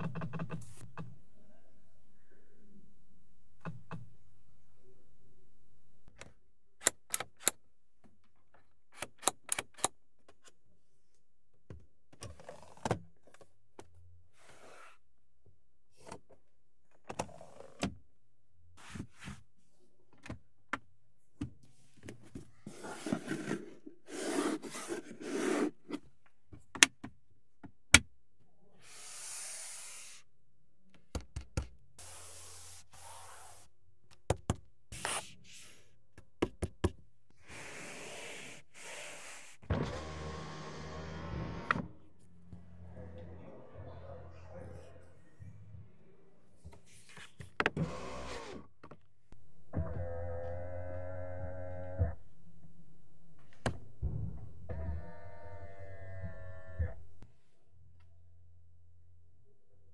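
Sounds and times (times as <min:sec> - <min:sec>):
sliding console cover: 0:22.7 - 0:26.0.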